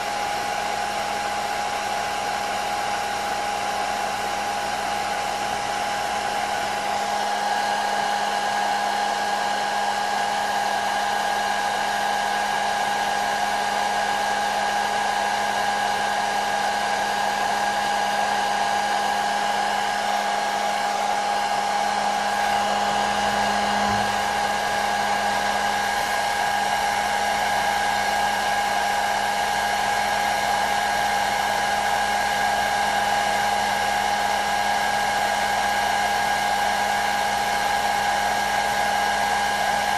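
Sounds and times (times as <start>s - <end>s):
hair dryer blowing: 0.0s - 39.9s
motor whine: 18.8s - 30.1s.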